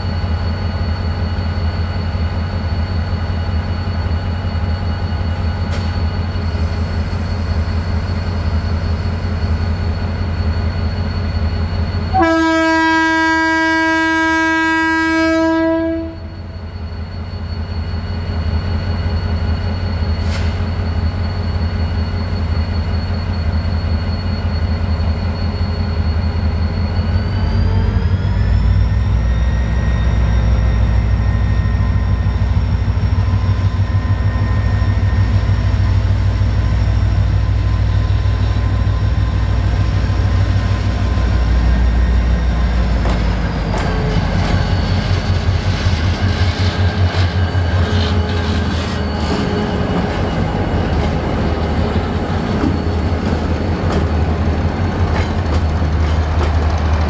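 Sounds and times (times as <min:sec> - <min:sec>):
locomotive air horn blast: 0:12.1 - 0:16.4.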